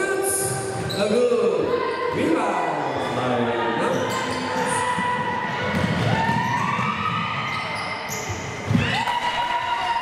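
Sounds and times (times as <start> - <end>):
basketball bouncing on gym floor: 5.0 - 9.0.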